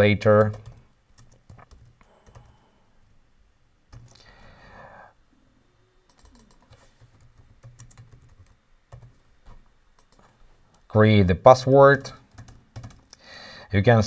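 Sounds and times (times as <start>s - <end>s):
computer keyboard keystrokes: 0.3s - 2.5s, 3.9s - 4.2s, 6.1s - 9.1s, 10.0s - 10.8s, 12.3s - 13.2s.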